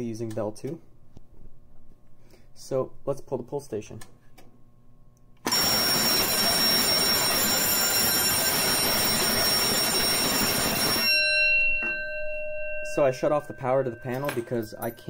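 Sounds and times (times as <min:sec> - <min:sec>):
faint steady ringing tone: 0:05.4 - 0:15.0
fire alarm bell ringing: 0:05.5 - 0:15.0.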